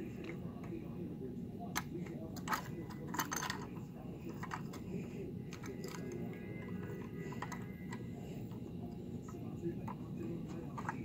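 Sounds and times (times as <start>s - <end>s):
steady low hum: 0.0s - 11.0s
toy truck parts clattering: 1.8s - 4.9s, 5.5s - 8.1s, 9.9s - 11.0s.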